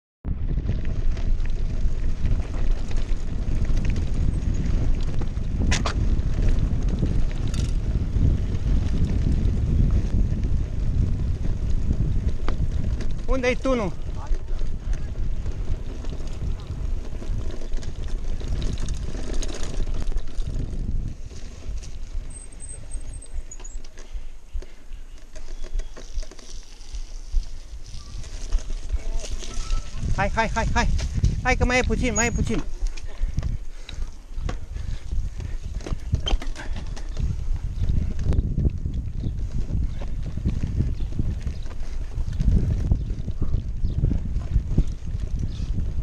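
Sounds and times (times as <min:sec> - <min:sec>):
wind buffeting microphone: 0:00.2 - 0:46.0
bike clicks and rattles: 0:00.4 - 0:46.0
high squeak: 0:29.3 - 0:30.0.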